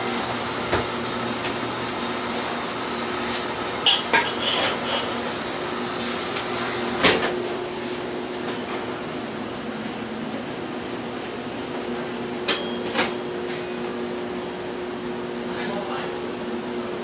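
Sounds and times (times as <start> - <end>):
shaved-ice machine humming: 0.0 - 10.0.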